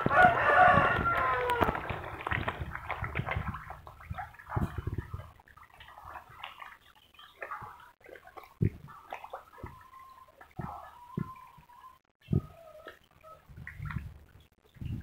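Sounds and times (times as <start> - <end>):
fish thrashing water splashing: 0.0 - 11.4.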